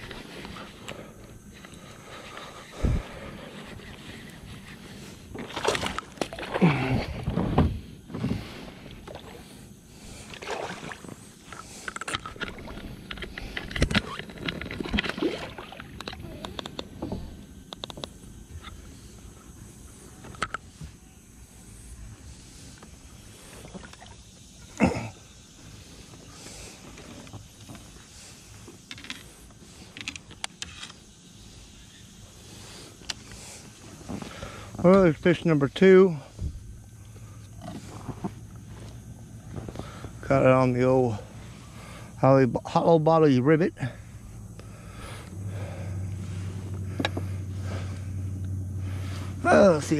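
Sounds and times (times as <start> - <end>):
water splashing around kayak: 2.5 - 16.2
fishing gear clicking and rattling: 11.4 - 16.9, 28.7 - 31.0.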